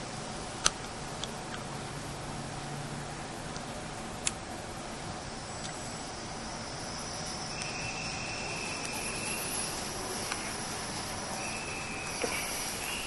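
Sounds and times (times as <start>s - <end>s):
railway platform background noise: 0.0s - 13.0s
thin high steady tone: 4.9s - 13.0s.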